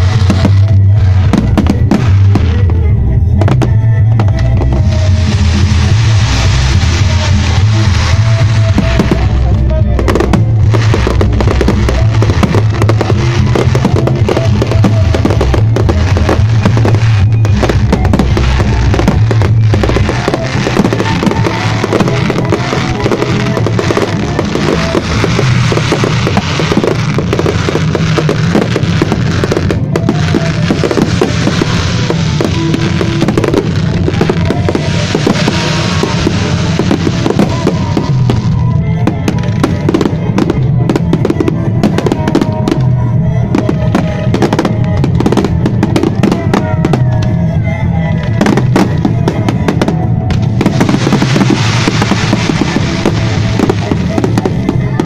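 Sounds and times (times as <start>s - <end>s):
fireworks bangs and crackling: 0.0s - 55.0s
loud music: 0.0s - 55.0s.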